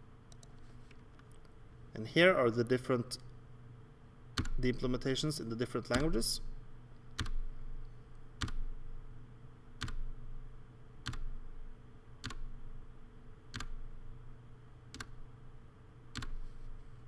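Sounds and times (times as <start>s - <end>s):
low steady hum: 0.0s - 17.0s
computer keyboard key presses: 4.4s - 4.6s, 7.2s - 7.4s, 8.4s - 8.6s, 9.8s - 10.0s, 11.0s - 11.3s, 12.2s - 12.4s, 13.5s - 13.8s, 14.9s - 15.2s, 16.1s - 16.4s.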